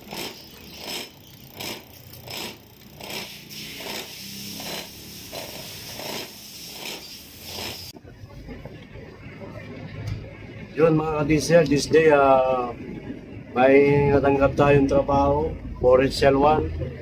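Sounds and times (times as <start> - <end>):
injector spraying fuel hissing: 3.0 - 7.9.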